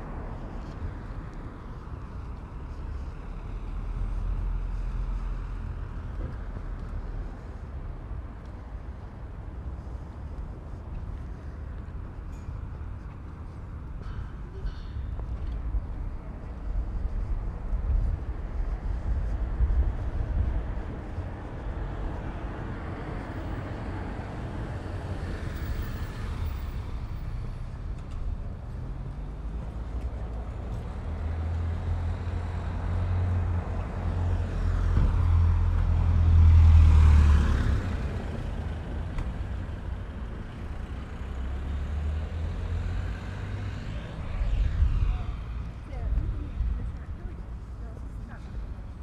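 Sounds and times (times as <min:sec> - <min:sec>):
street traffic: 0:00.0 - 0:49.0
wind on microphone: 0:15.0 - 0:25.9, 0:43.2 - 0:49.0
vehicle passing close by: 0:18.8 - 0:47.7.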